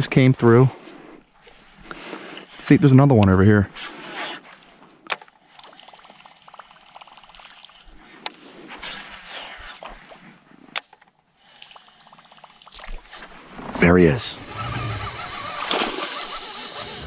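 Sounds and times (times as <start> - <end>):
water lapping: 0.5 - 13.6, 14.4 - 17.0
sharp clicks: 5.0 - 5.3, 10.7 - 11.1
fishing reel ticking: 5.0 - 9.9, 10.7 - 13.1, 14.4 - 17.0.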